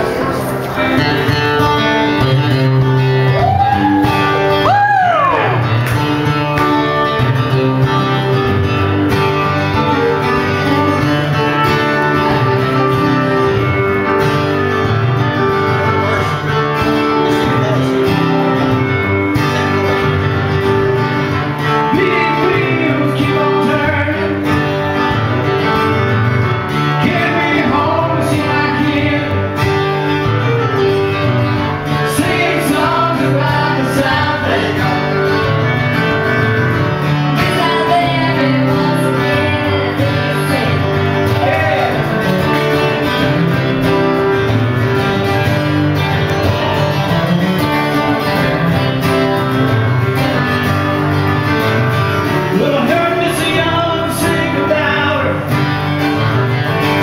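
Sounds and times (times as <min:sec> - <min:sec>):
strummed acoustic guitar: 0:00.0 - 0:57.0
person singing: 0:21.6 - 0:25.1, 0:26.9 - 0:30.0, 0:31.9 - 0:35.7, 0:37.3 - 0:42.6, 0:52.4 - 0:55.6.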